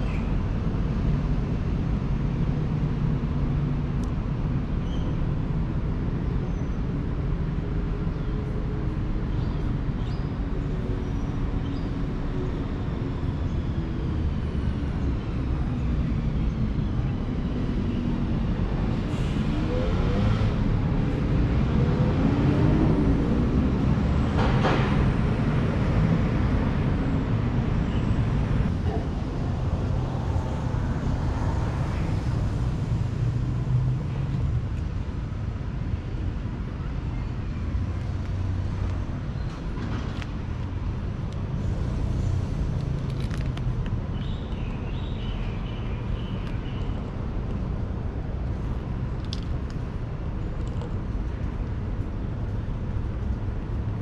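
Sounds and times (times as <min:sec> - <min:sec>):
road traffic rumble: 0:00.0 - 0:54.0.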